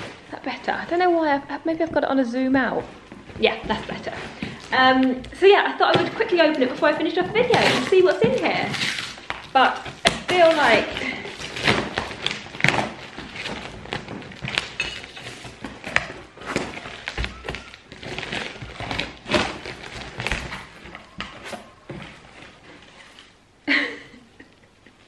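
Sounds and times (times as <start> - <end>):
cardboard parcel thuds and rustles: 0.0 - 23.4
packing tape tearing: 3.8 - 23.4.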